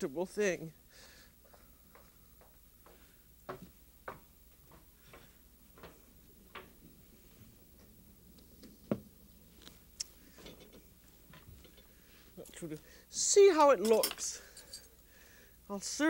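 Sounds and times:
low studio hum: 0:00.0 - 0:16.0
faint footsteps: 0:01.3 - 0:12.8.

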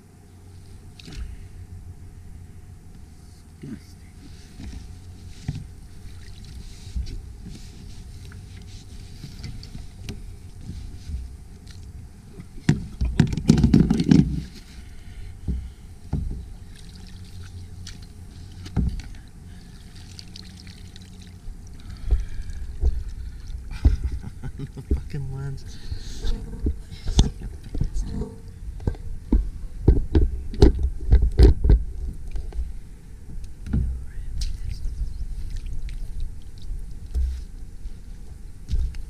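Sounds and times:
water splashing around kayak: 0:04.6 - 0:24.9.

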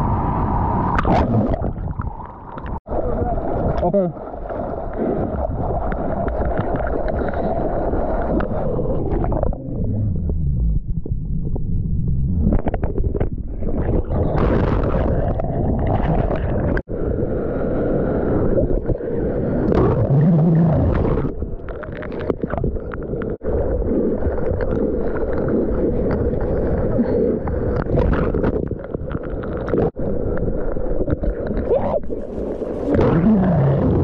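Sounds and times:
water washing over camera: 0:12.6 - 0:16.9.

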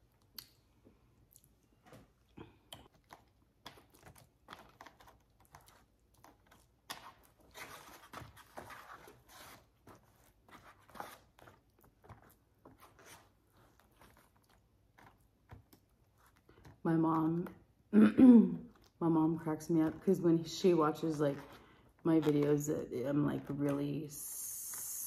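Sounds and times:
chewing: 0:01.2 - 0:07.4
fork scraping foam container: 0:07.0 - 0:11.6.

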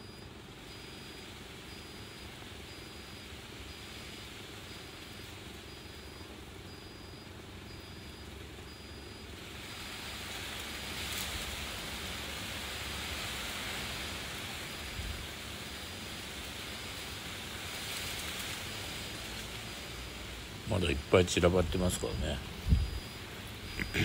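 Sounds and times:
faint high beep: 0:00.0 - 0:09.4, 0:20.7 - 0:24.0
outdoor background hiss: 0:00.0 - 0:24.0
low rumble: 0:21.7 - 0:24.0.

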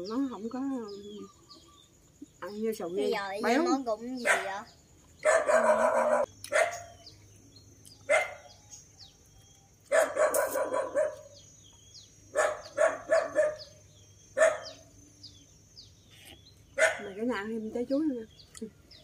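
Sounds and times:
faint bird chirps: 0:00.0 - 0:19.0
dog barking: 0:04.2 - 0:07.0, 0:08.1 - 0:08.5, 0:09.9 - 0:11.4, 0:12.3 - 0:13.8, 0:14.4 - 0:14.8, 0:16.8 - 0:17.2.

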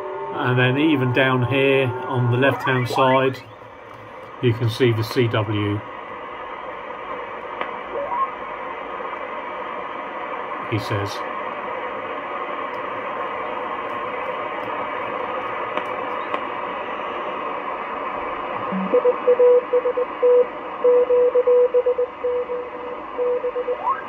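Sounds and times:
rising tuning whistle: 0:00.0 - 0:03.7
radio band hiss: 0:00.3 - 0:18.9.

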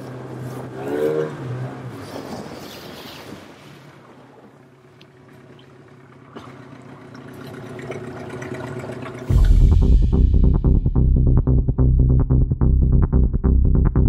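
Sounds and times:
water splashing along hull: 0:00.0 - 0:09.8
outboard motor running slowly: 0:03.9 - 0:10.4
electronic music with a beat: 0:09.3 - 0:14.0.

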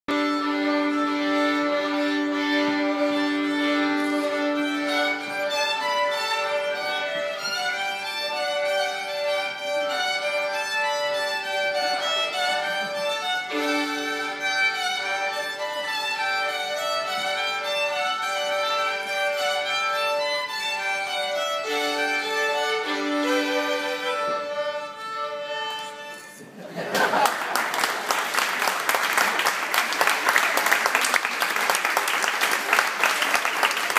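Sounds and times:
violins playing a simple tune: 0:00.1 - 0:26.6.

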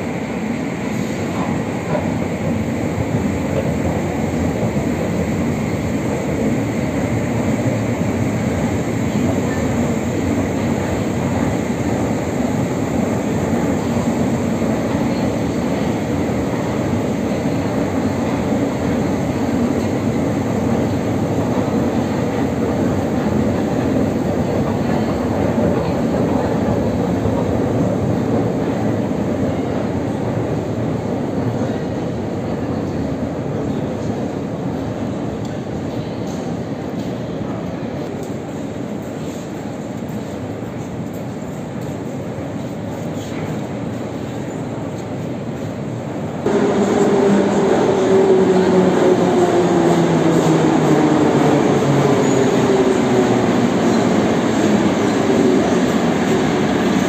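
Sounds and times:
metro train wheels rumbling on rails: 0:00.0 - 0:57.0.

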